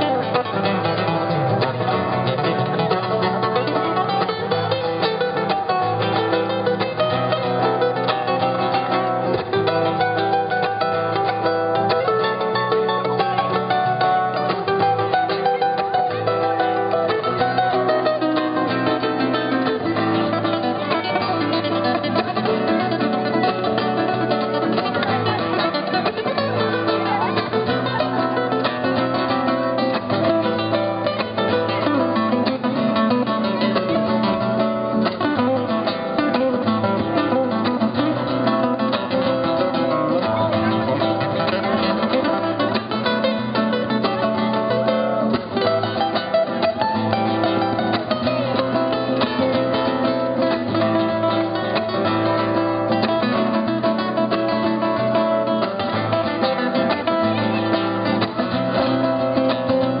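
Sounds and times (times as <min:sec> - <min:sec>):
flamenco guitar fingerpicking: 0:00.0 - 1:00.0.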